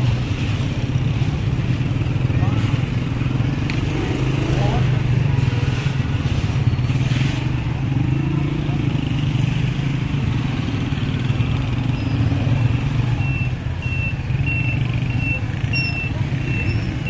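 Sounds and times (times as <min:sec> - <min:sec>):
street traffic engine drone: 0:00.0 - 0:17.0
short high beeps: 0:13.2 - 0:17.0.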